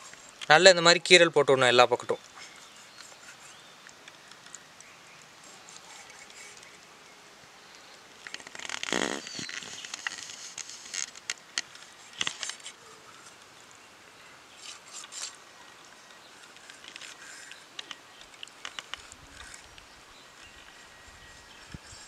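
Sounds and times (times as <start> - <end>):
insects: 0.0 - 22.0
birds: 1.7 - 11.0.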